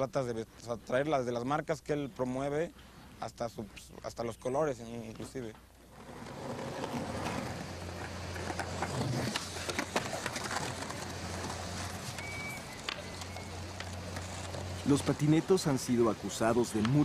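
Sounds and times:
skateboards rolling on concrete: 5.0s - 17.0s.

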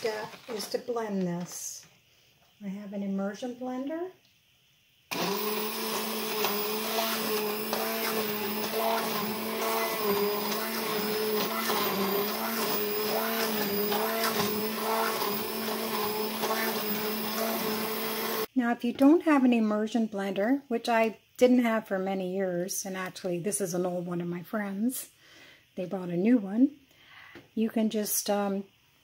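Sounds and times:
immersion blender running: 5.1s - 18.5s.

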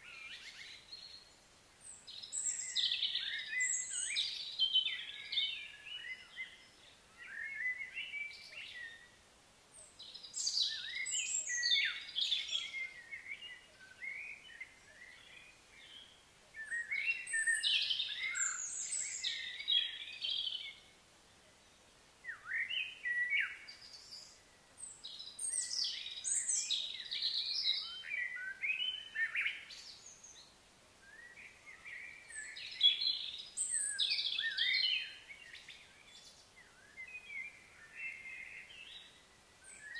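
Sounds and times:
birds chirping and whistling: 10.3s - 20.8s, 25.2s - 30.2s, 31.1s - 39.9s.

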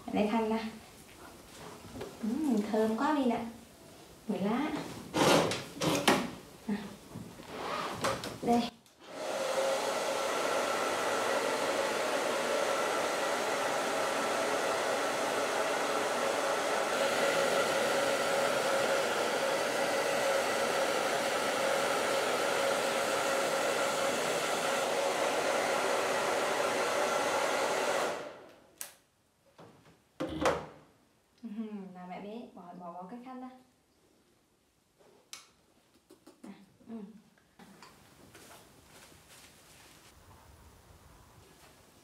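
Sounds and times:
hair dryer running: 9.0s - 28.6s.

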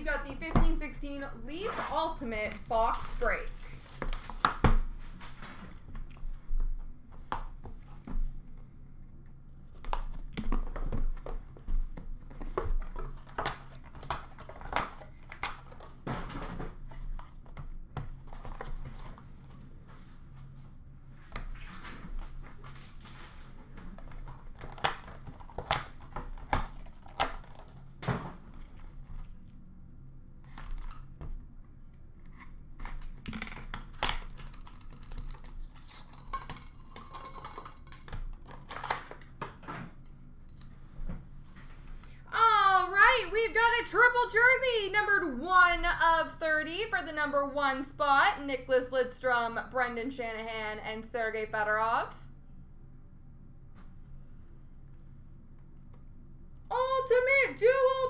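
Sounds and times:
plastic wrap tearing and crinkling: 24.0s - 29.6s.

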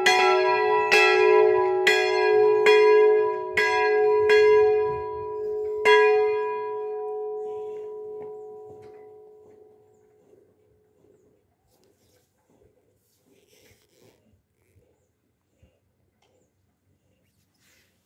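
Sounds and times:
church bells ringing: 0.0s - 9.8s.

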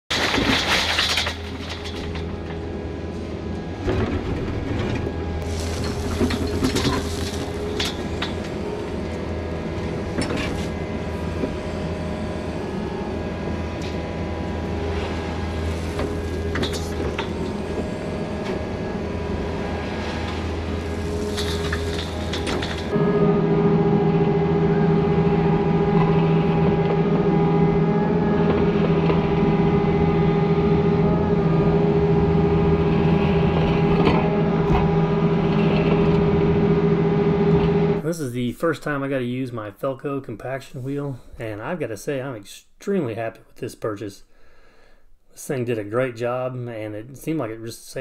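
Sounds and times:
rock pouring from bucket: 0.1s - 2.4s, 5.4s - 7.8s
bucket and rock clanking: 0.1s - 2.6s, 3.9s - 8.6s, 20.2s - 22.9s
excavator diesel engine running: 0.1s - 38.2s.

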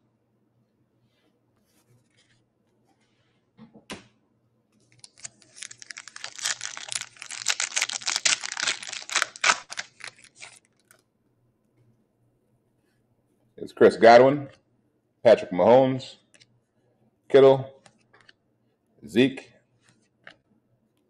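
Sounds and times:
foil wrapper tearing and crinkling: 4.9s - 11.0s.

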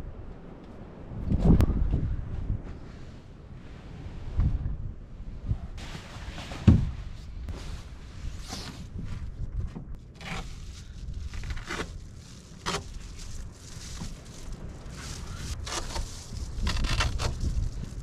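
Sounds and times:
nylon fabric rustling: 10.0s - 18.0s.

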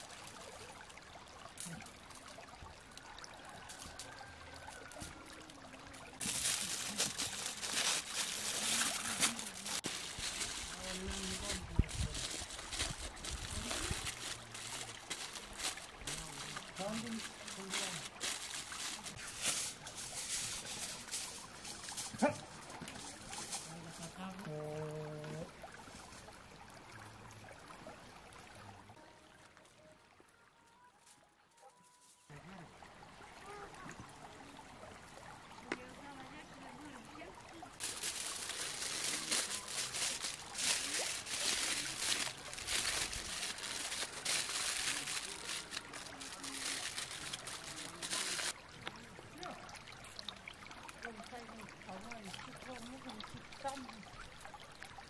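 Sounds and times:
shallow stream trickling: 0.0s - 55.0s
aluminium foil crinkling: 6.2s - 22.3s, 37.8s - 48.6s
dog bark: 22.1s - 22.5s.

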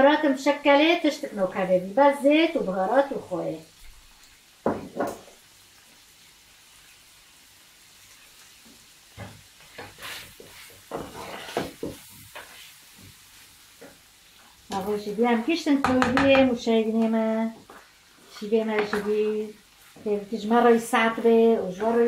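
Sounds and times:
meat sizzling in a pan: 0.0s - 22.0s.

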